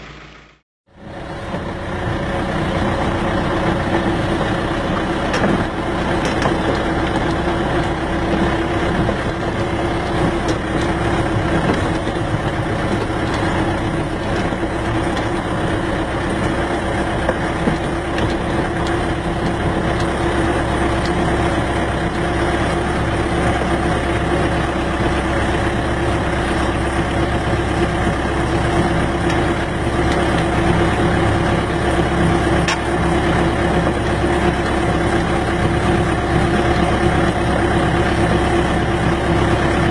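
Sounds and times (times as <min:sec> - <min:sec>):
vehicle engine running: 0:00.0 - 0:39.9.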